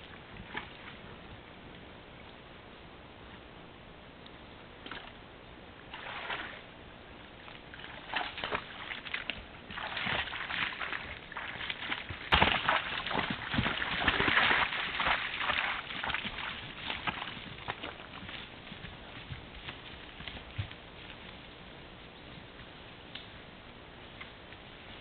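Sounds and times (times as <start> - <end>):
rustling and footsteps in grass: 13.0 - 25.0.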